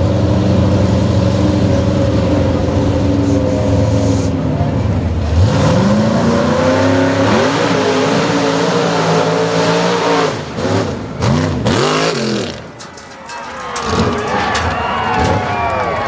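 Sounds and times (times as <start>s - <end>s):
truck engine revving hard: 0.0s - 12.8s.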